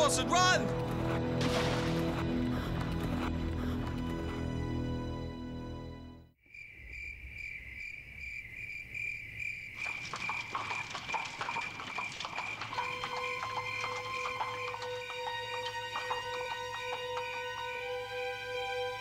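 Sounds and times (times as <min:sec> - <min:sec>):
music: 0:00.0 - 0:06.4, 0:12.7 - 0:19.0
crickets chirping: 0:06.4 - 0:19.0
horse hooves clip-clopping: 0:09.8 - 0:18.6.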